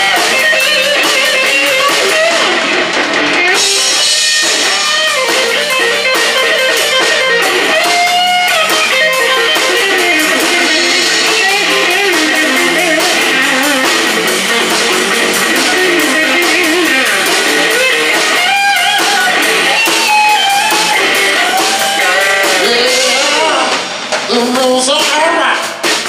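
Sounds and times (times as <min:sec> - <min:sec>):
electric guitar lead: 0:00.0 - 0:25.0
bass guitar: 0:00.0 - 0:26.0
drums with cymbal beat: 0:00.0 - 0:26.0.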